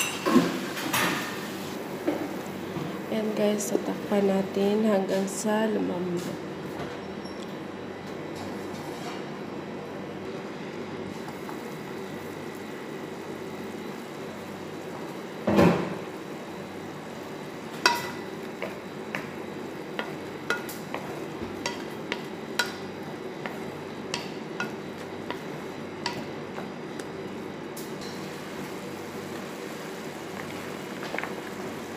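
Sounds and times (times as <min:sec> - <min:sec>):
chicken sizzling in a frying pan: 0:28.1 - 0:31.9.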